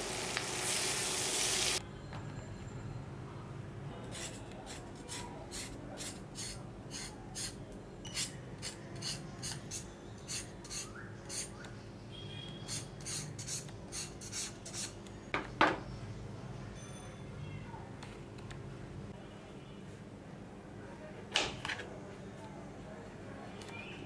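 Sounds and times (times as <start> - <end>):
knife scraping vegetable skin: 4.1 - 11.6, 12.6 - 15.0.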